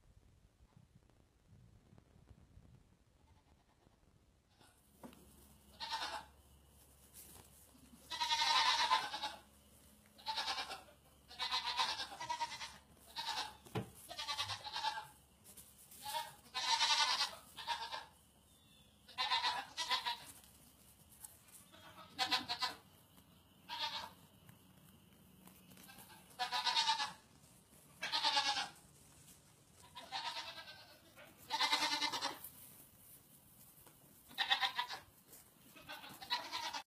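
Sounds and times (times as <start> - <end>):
baby goats bleating: 5.7 - 6.3, 7.8 - 9.5, 10.1 - 15.2, 16.0 - 18.2, 19.1 - 20.4, 21.6 - 22.9, 23.6 - 24.2, 25.7 - 27.2, 27.9 - 28.8, 29.8 - 32.6, 34.2 - 36.9.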